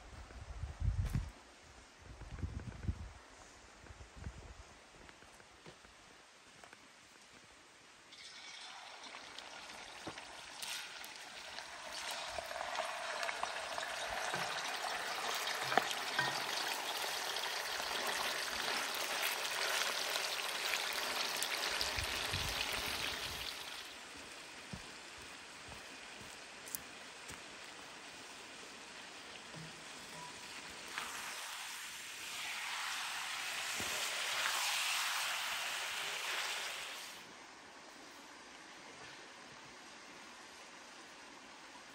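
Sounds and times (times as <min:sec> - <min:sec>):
meat sizzling in oil: 0:08.1 - 0:23.9, 0:29.6 - 0:37.2.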